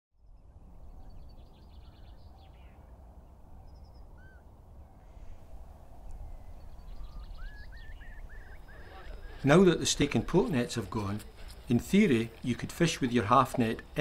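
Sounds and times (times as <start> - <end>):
high repeated bird calls: 3.6 - 4.5, 6.2 - 14.0.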